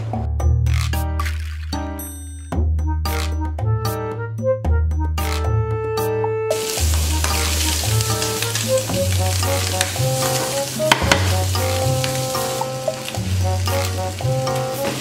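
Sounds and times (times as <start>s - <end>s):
background music with bass: 0.0s - 15.0s
onions and ham sizzling: 6.5s - 15.0s
wooden spatula stirring: 6.9s - 11.4s.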